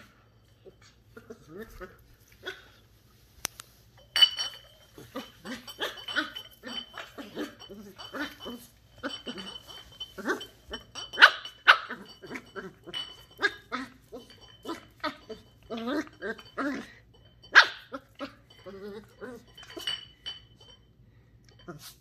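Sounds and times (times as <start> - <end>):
puppy barking: 11.1 - 12.5, 17.5 - 18.0.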